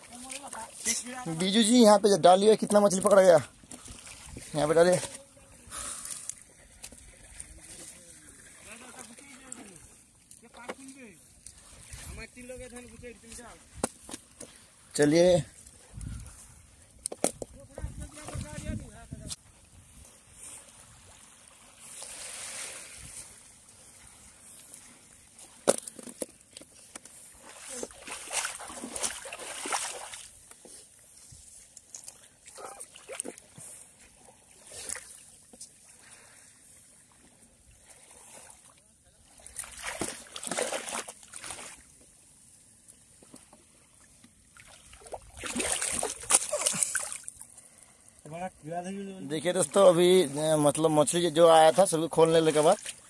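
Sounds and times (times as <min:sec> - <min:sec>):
shallow seawater washing: 0:00.0 - 0:02.0, 0:02.7 - 0:10.2, 0:19.8 - 0:25.6, 0:27.2 - 0:31.0, 0:32.3 - 0:42.0, 0:43.7 - 0:48.2, 0:49.3 - 0:53.0
water splashing and sloshing: 0:00.0 - 0:53.0.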